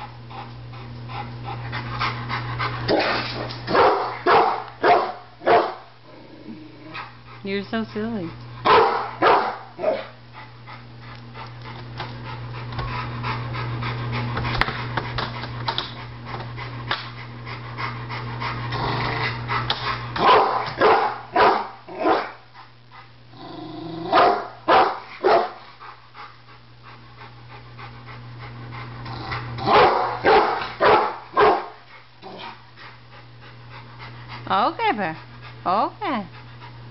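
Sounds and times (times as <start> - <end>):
steady low hum: 0.0 - 36.9
dog barking: 2.9 - 5.9, 8.6 - 10.1, 20.2 - 22.4, 24.1 - 25.6, 29.7 - 31.8.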